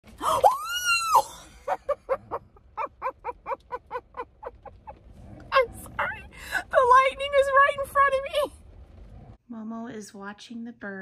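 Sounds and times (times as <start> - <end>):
woman shrieking: 0.2 - 1.5
woman laughing breathily: 1.4 - 5.0.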